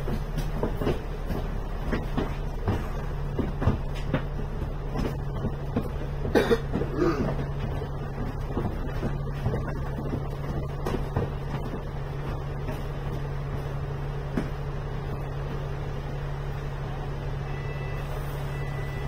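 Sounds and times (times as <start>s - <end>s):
bus engine idling: 0.0s - 19.0s
short cough-like sound: 6.3s - 7.3s.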